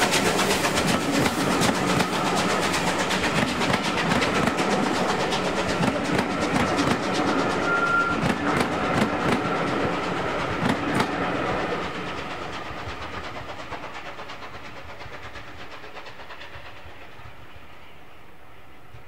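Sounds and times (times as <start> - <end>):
train wheels clicking over rail joints: 0.0 - 19.0
thin high whine: 7.2 - 8.3.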